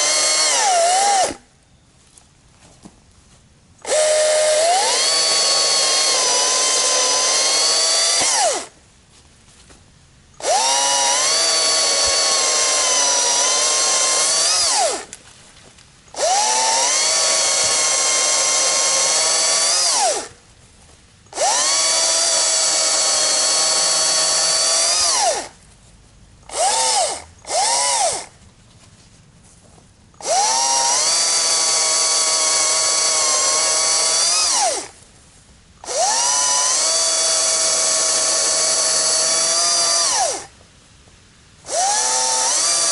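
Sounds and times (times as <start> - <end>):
battery chainsaw cutting wood: 0.0 - 1.4, 3.8 - 8.8, 10.4 - 15.2, 16.1 - 20.3, 21.3 - 25.6, 26.5 - 28.3, 30.2 - 35.0, 35.8 - 40.5, 41.6 - 42.9.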